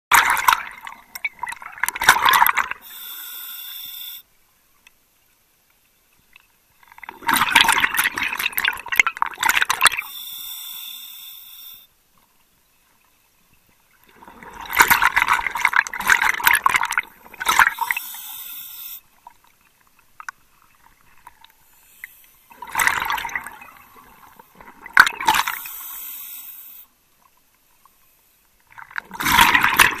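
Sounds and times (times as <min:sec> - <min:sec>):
regulator demand valve hiss: 0:02.8 - 0:04.3, 0:10.0 - 0:11.9, 0:17.8 - 0:19.0, 0:25.6 - 0:26.9.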